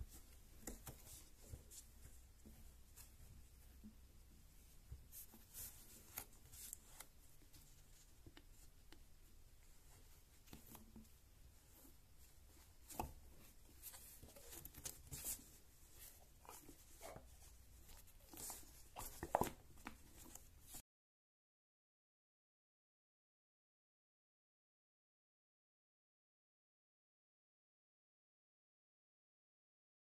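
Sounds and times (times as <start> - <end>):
hands kneading stress ball: 0.0 - 20.8.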